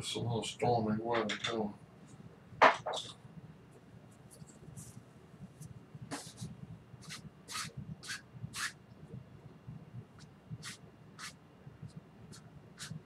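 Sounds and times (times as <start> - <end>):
paintbrush scratching on canvas: 6.1 - 8.8, 10.2 - 11.4, 12.3 - 13.0.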